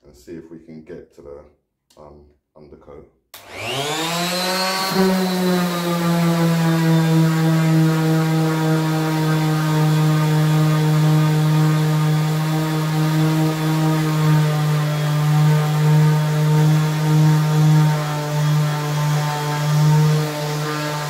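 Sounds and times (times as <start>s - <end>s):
orbital sander running: 3.4s - 21.0s.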